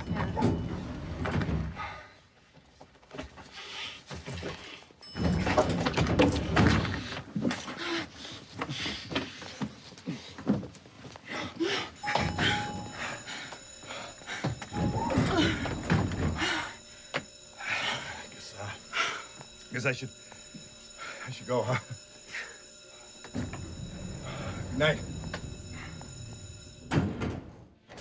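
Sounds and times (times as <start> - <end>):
breathing: 1.7 - 2.4, 3.4 - 5.0, 6.9 - 10.4, 11.2 - 19.4, 21.0 - 21.3, 22.3 - 23.1, 24.1 - 24.7
steady tone: 12.0 - 26.9.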